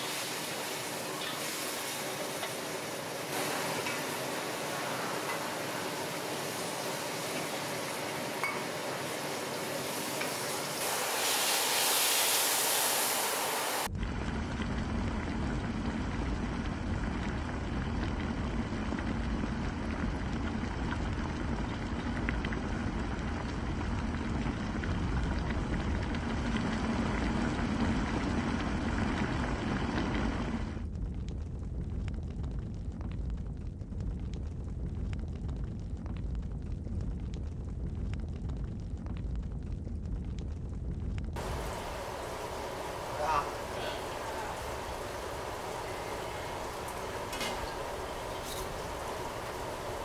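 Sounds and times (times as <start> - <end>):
pork sizzling in a wok: 0.0 - 13.9, 41.4 - 50.0
liquid boiling hard: 0.0 - 50.0.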